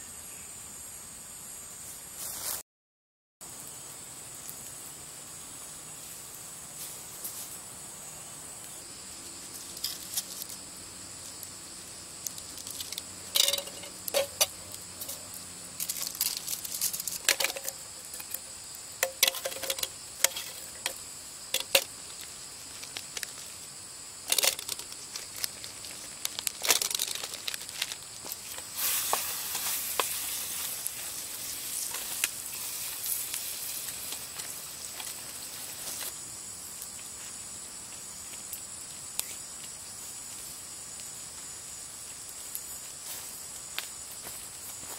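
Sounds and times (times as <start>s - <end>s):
fire crackling: 3.4s - 44.2s
insects trilling: 3.4s - 44.9s
sausages sizzling in oil: 9.4s - 25.4s, 26.0s - 36.0s.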